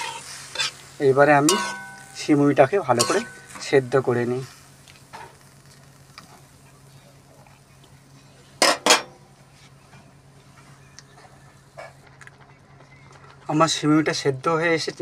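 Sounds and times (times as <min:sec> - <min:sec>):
faint steady hum: 0:00.0 - 0:15.0
spatula clinking on metal pan: 0:01.4 - 0:02.2, 0:03.0 - 0:03.4.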